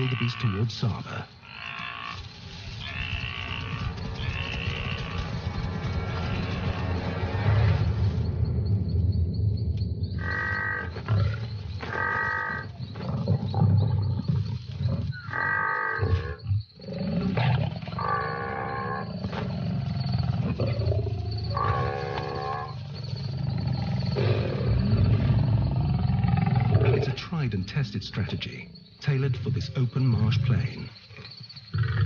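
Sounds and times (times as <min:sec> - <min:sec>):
drawn-out pitched animal cries: 0:01.4 - 0:07.5, 0:10.2 - 0:14.5, 0:19.8 - 0:23.3
lions growling low: 0:10.2 - 0:27.2.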